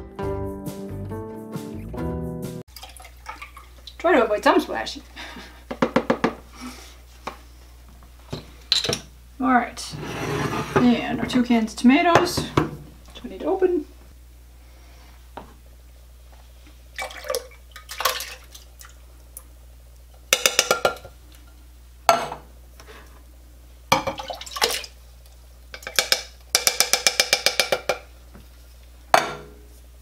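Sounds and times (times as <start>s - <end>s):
cans clicking and knocking: 20.4s - 21.1s, 25.8s - 28.1s.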